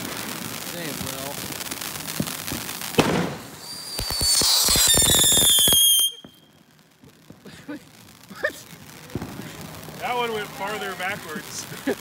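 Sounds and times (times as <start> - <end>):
firework fountain shrill whistle: 3.0 - 6.6.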